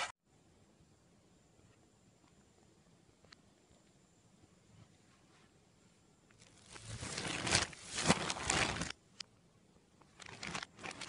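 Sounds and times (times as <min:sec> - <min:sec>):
plastic bag of cereal rustling: 0:06.4 - 0:09.0, 0:10.1 - 0:11.0.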